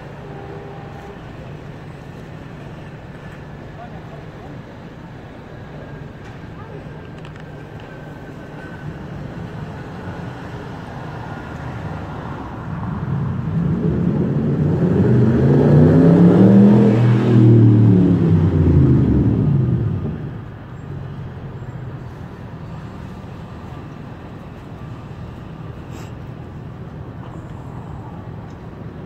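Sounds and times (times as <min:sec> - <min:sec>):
distant traffic: 0:00.0 - 0:29.0
vehicle engine passing: 0:11.9 - 0:20.4.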